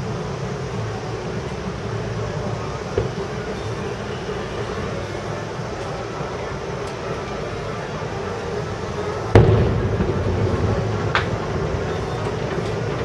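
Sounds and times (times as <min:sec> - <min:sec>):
low background rumble: 0:00.0 - 0:13.0
firework boom: 0:09.3 - 0:13.0
sharp firework crack: 0:09.4 - 0:13.0.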